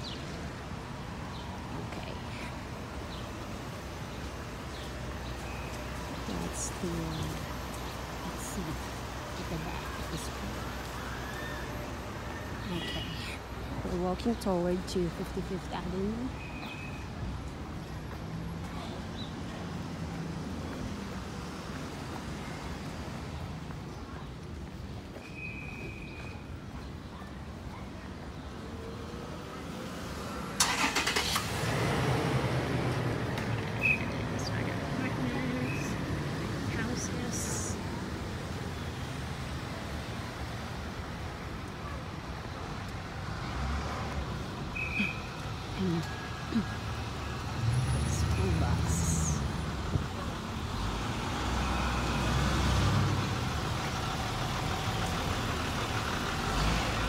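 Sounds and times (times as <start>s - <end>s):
bus engine rumble: 0.0s - 25.2s, 26.4s - 57.0s
street traffic: 0.0s - 57.0s
car engines running: 42.5s - 57.0s.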